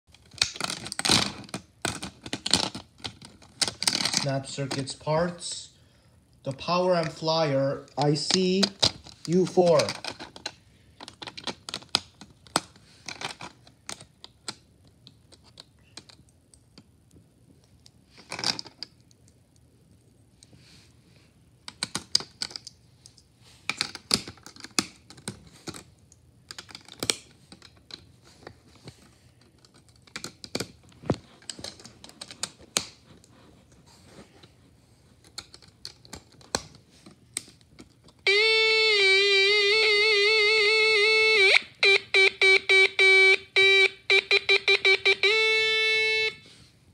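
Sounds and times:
plastic parts clicking and rattling: 0:00.1 - 0:05.0, 0:07.9 - 0:19.4, 0:21.6 - 0:33.3, 0:35.2 - 0:38.5
loud buzzing tone from speaker: 0:38.3 - 0:46.6.

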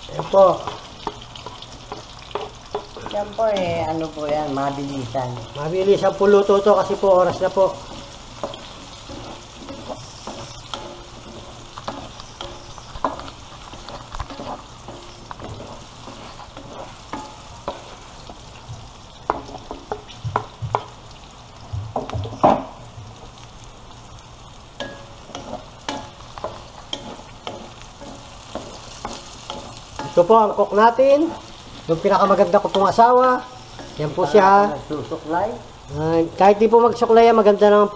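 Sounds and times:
vegetables sizzling in oil: 0:00.0 - 0:37.9
wooden spatula scraping a pan: 0:06.4 - 0:18.1.

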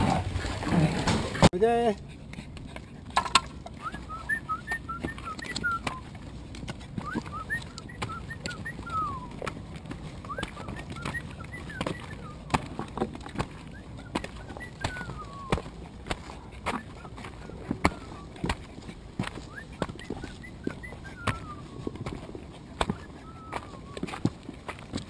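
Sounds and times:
footsteps on wooden steps: 0:02.5 - 0:25.0
puppies whimpering: 0:03.6 - 0:06.2, 0:06.8 - 0:24.3.

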